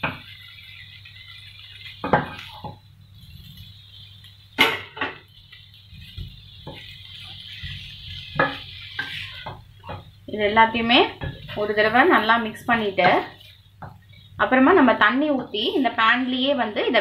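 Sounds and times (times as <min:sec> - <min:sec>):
faint steady hiss: 0:00.0 - 0:17.0
wooden spatula knocking on pan: 0:06.0 - 0:06.9, 0:07.6 - 0:10.1, 0:11.0 - 0:11.8, 0:13.0 - 0:14.1.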